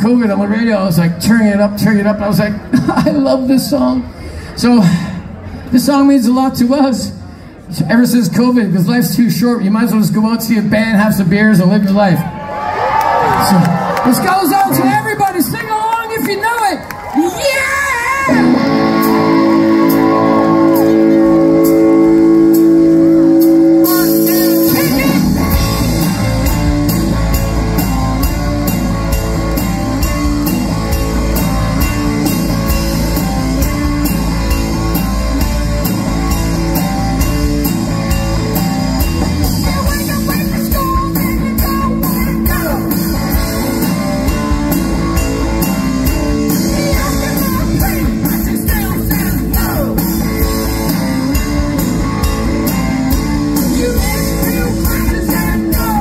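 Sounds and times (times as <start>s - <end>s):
live rock band playing: 17.5s - 56.0s
person singing: 23.6s - 25.6s, 53.6s - 56.0s.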